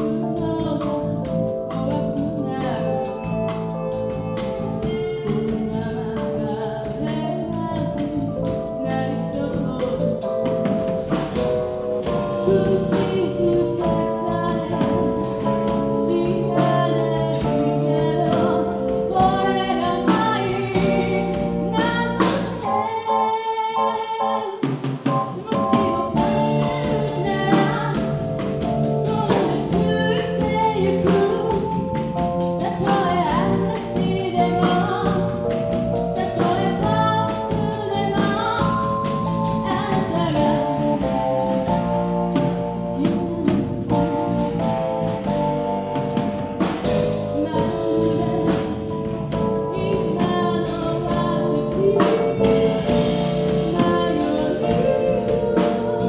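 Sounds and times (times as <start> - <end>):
live pop band playing: 0.0 - 56.0
woman singing: 0.0 - 56.0.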